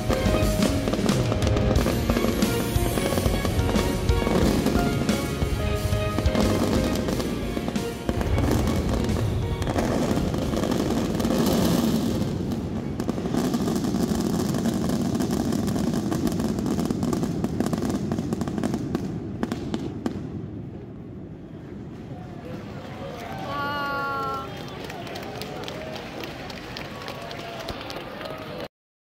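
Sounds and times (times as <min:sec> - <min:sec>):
background music: 0:00.0 - 0:12.5
fireworks crackling: 0:00.0 - 0:28.6.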